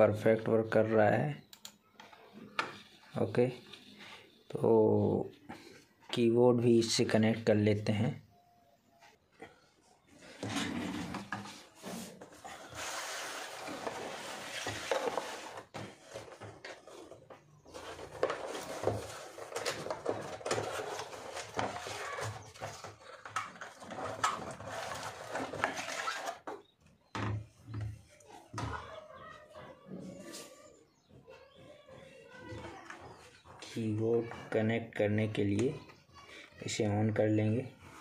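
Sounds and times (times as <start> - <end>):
cardboard box rustling and scraping: 10.2 - 26.4.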